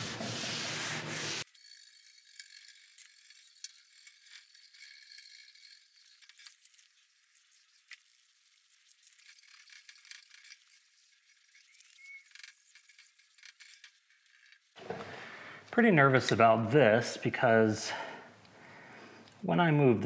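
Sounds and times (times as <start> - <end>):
wire brush scrubbing metal: 0.0 - 14.8.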